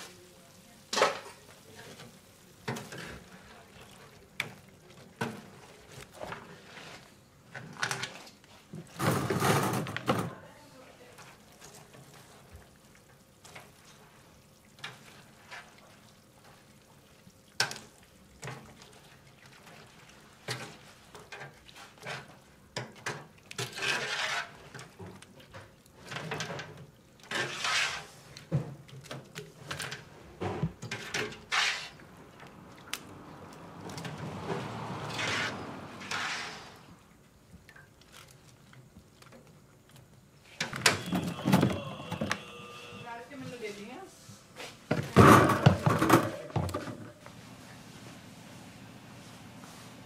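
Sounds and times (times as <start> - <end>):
liquid splashing in a wok: 0.0 - 9.9, 11.0 - 40.6
metal scraping and knocking on pan: 44.9 - 47.2.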